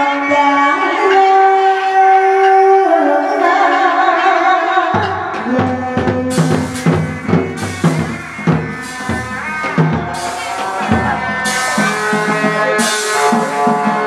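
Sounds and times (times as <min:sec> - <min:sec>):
regular drum beat: 0:05.0 - 0:14.0
sustained melody: 0:06.3 - 0:14.0.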